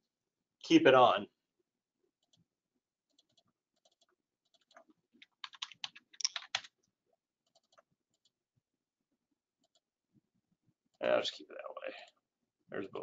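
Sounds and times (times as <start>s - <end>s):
typing on computer keyboard: 3.2s - 6.8s.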